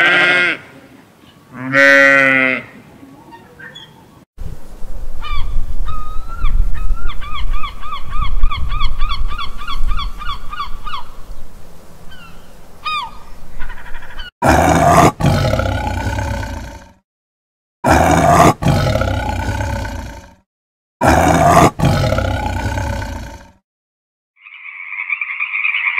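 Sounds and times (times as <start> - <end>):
tiger roaring: 14.4 - 17.0, 17.8 - 20.4, 21.0 - 23.6.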